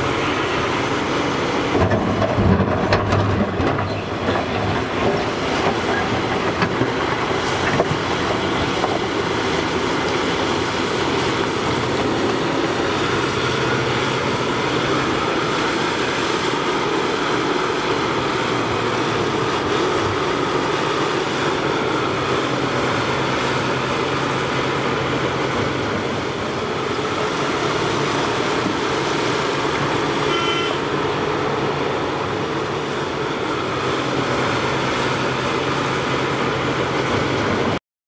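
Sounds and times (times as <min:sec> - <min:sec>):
excavator diesel engine running: 0:00.0 - 0:37.8
rock and machinery noise: 0:00.0 - 0:37.8
short high beep: 0:30.2 - 0:30.8.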